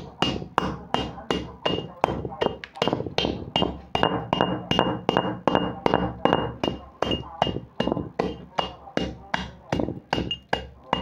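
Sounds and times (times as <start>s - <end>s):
metal pestle crunching clay: 0.0s - 11.0s.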